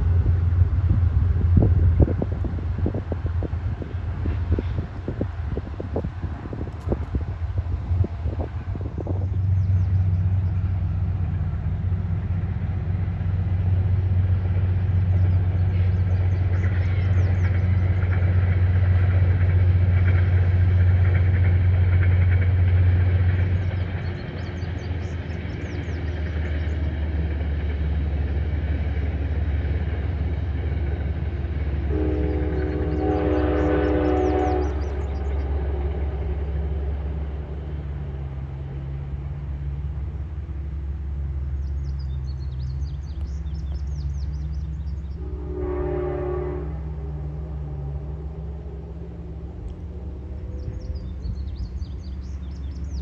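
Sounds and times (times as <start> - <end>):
distant train rumble: 0.0 - 53.0
train horn chord: 31.8 - 36.5, 45.1 - 49.8.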